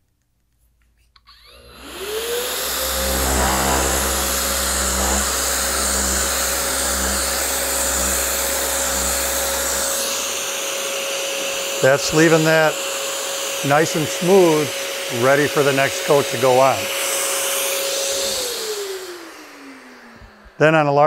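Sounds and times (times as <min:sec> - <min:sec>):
dust extraction vacuum hum: 0:01.3 - 0:21.0
orbit sander whining: 0:01.3 - 0:21.0
sanding pad scuffing wood: 0:02.8 - 0:09.7.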